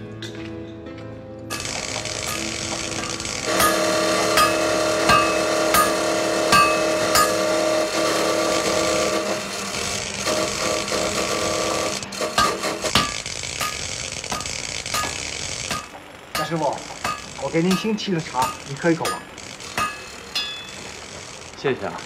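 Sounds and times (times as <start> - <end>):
steady hum: 1.5 - 22.0
hammer blows on metal: 3.1 - 8.0.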